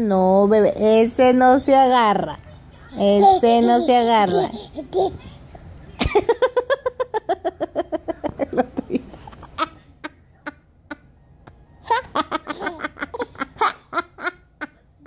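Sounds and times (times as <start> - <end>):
toddler laughing: 3.0 - 5.4.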